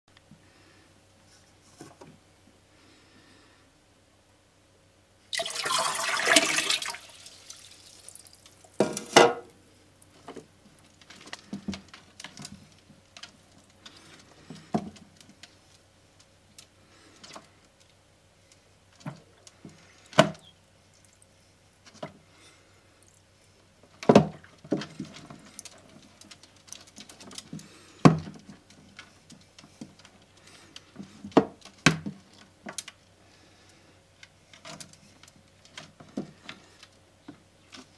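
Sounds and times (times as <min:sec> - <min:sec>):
short splashes in tank water: 0:05.3 - 0:08.3
water poured into aquarium: 0:05.3 - 0:08.7.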